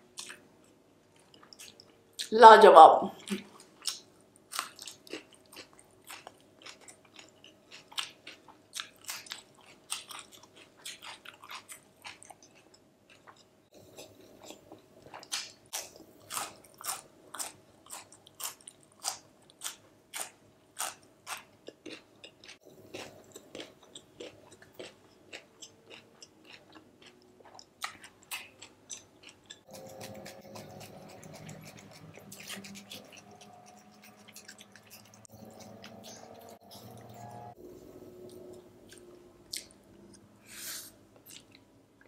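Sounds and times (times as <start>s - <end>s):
crisp wet chewing crunches: 15.2s - 37.0s.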